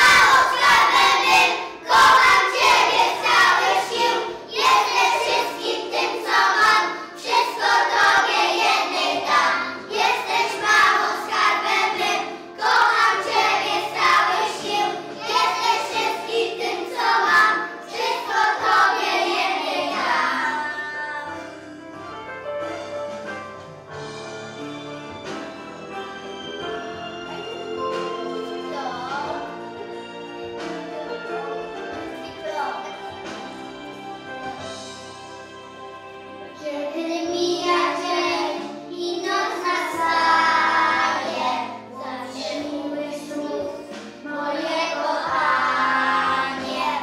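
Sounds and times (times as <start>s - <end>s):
children singing: 0.0s - 21.8s, 36.6s - 47.0s
backing music: 0.0s - 47.0s.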